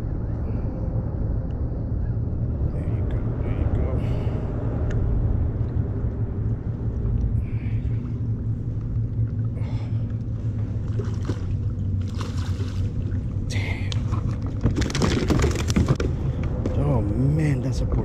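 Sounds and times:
steady low rumble: 0.0s - 18.0s
water lapping against kayak hull: 7.5s - 13.4s.

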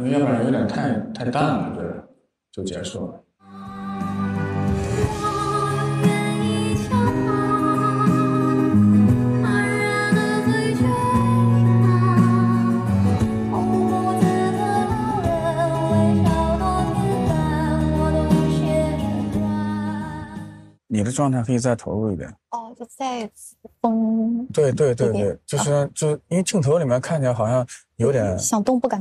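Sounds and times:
woman singing into microphone: 3.5s - 20.6s.

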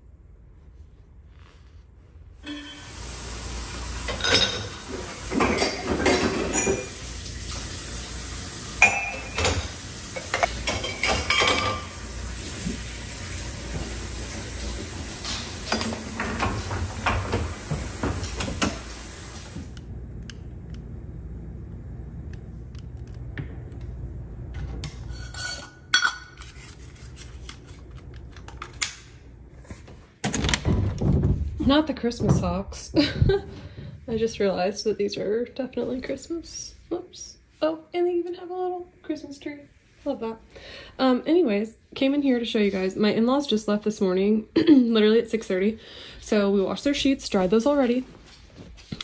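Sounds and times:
dishes and cutlery clattering: 4.1s - 7.0s, 8.8s - 12.0s, 15.2s - 18.8s, 25.0s - 26.7s.

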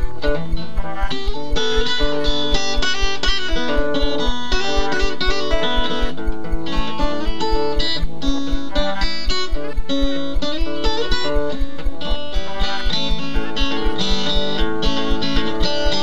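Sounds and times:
acoustic guitar picking: 0.0s - 16.0s
low thumping beat: 0.0s - 16.0s.

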